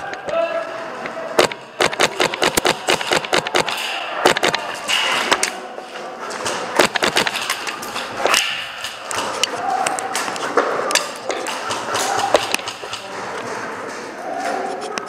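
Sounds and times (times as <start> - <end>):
faint distant voices: 0.0 - 15.0
airsoft gun shots: 1.4 - 4.8, 6.8 - 7.6
pellets striking hard walls: 1.4 - 5.5, 6.3 - 14.2.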